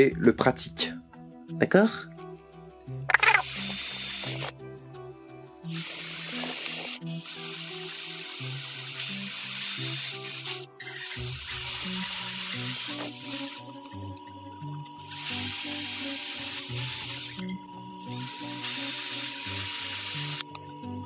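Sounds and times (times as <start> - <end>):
cordless drill boring through plastic: 3.1 - 4.5, 5.7 - 14.1, 15.0 - 17.4, 18.0 - 20.6.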